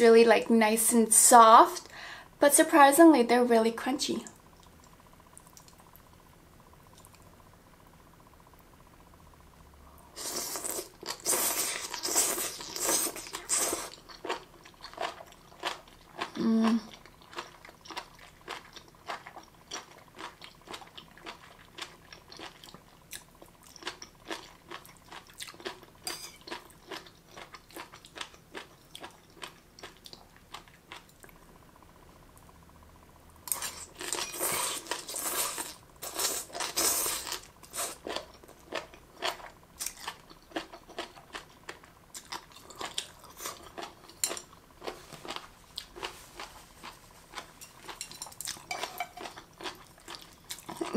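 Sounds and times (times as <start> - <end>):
soft chewing clicks: 4.3 - 6.1, 6.9 - 7.3, 10.6 - 31.5, 36.5 - 50.9
crunchy chewing: 10.2 - 31.4, 33.4 - 50.9.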